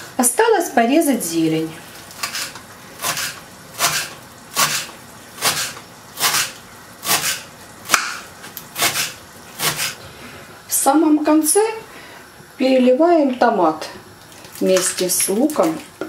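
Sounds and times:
knife chopping herbs on wooden board: 8.8 - 10.0.

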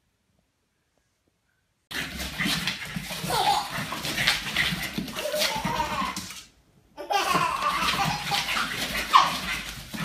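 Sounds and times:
toddler laughing: 3.2 - 3.8, 5.2 - 6.3, 7.0 - 9.7.

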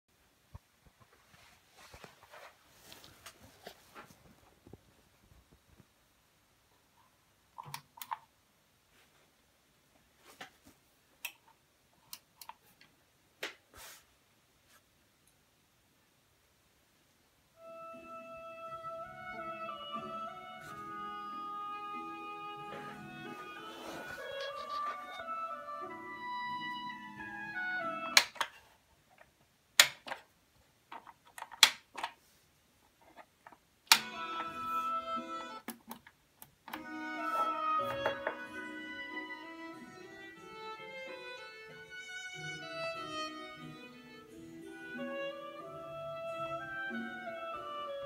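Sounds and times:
music through loudspeakers: 17.6 - 28.1, 36.8 - 40.7.

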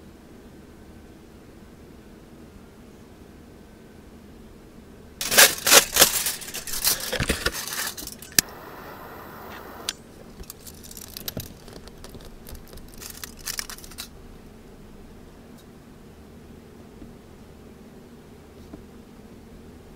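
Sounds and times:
aluminium foil crinkling: 5.2 - 8.5, 10.3 - 14.1
torch ignition click: 8.3 - 10.0
butane torch hissing: 8.4 - 9.9.

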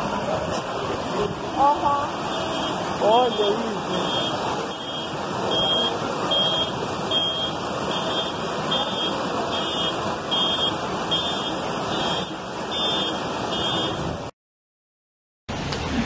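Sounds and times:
floodwater rushing: 0.0 - 14.3
heavy rain: 0.0 - 14.3
electronic alarm beeping: 2.3 - 14.0.

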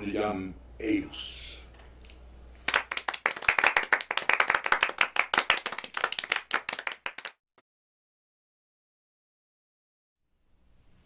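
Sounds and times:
group applause: 2.6 - 7.4.

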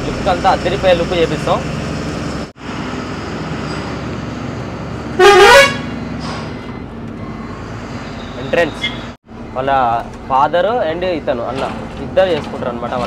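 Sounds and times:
truck engine running: 0.0 - 13.0
truck horn blast: 5.2 - 6.0.

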